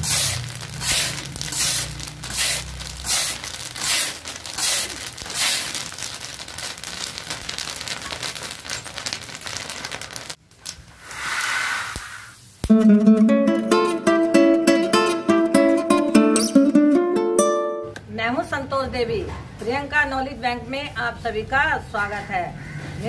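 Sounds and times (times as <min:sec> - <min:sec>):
metal scoop scraping pan: 0:00.0 - 0:05.7
chickpeas rattling in pan: 0:00.0 - 0:10.4.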